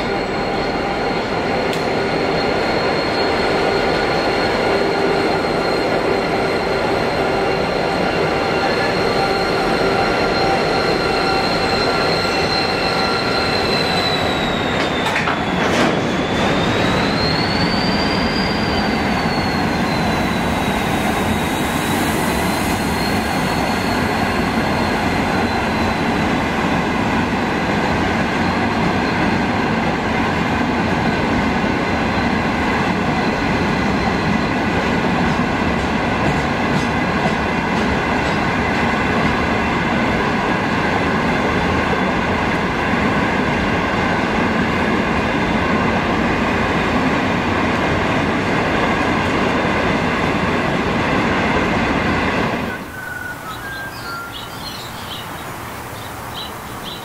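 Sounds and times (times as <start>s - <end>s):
high-pitched wheel squeal: 0.0s - 26.1s, 52.6s - 55.3s
train wheels rumbling on rail: 0.0s - 57.0s.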